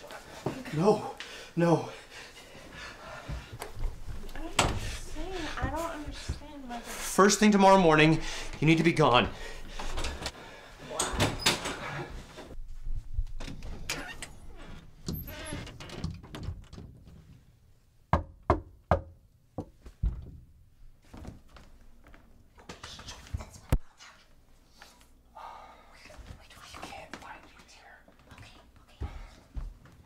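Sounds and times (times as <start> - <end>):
faint rustling and movement: 2.2 - 7.0
knocking on a door: 18.1 - 20.4.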